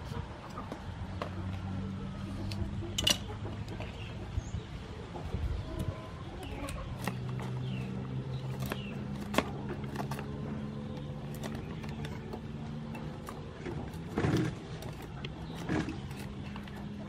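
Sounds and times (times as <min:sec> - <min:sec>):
birds chirping: 0:00.0 - 0:17.0
knife scraping pumpkin rind: 0:06.4 - 0:17.0.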